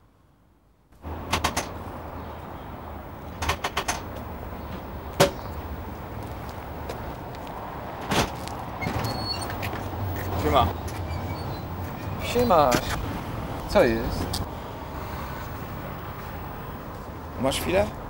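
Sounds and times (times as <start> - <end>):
payphone clicks and knocks: 1.3 - 1.8, 3.4 - 4.2.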